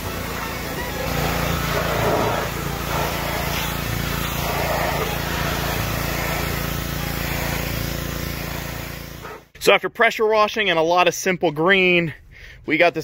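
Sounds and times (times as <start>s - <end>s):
pressure washer spraying metal: 0.0s - 9.5s.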